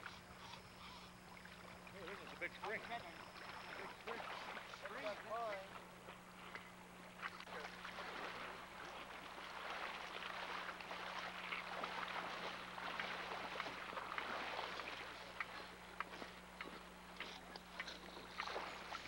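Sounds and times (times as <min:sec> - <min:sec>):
river water sloshing: 0:00.0 - 0:19.0
fish thrashing and splashing: 0:07.4 - 0:19.0.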